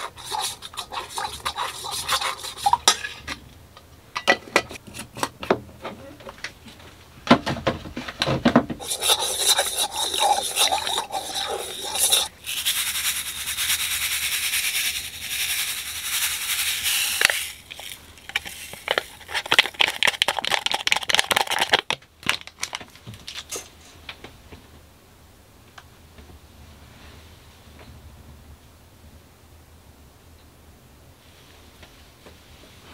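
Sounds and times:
yeast granules pouring: 0:00.0 - 0:02.8, 0:08.8 - 0:21.9
metal spoon scraping in bowl: 0:00.0 - 0:03.4, 0:08.8 - 0:19.8.

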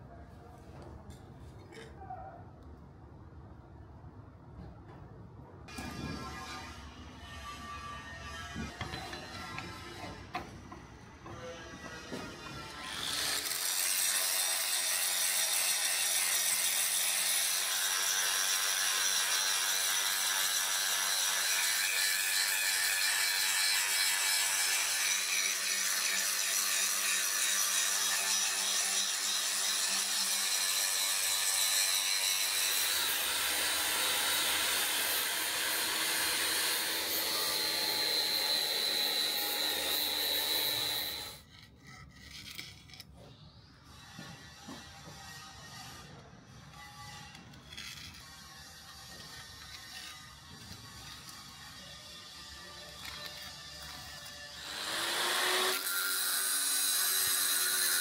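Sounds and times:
power tool grinding steel: 0:11.2 - 0:43.3, 0:44.0 - 0:58.0.

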